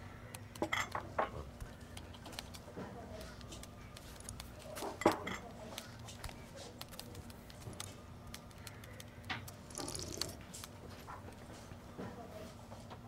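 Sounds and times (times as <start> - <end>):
small ticks: 5.7 - 10.7
person sipping from cup: 9.7 - 10.4.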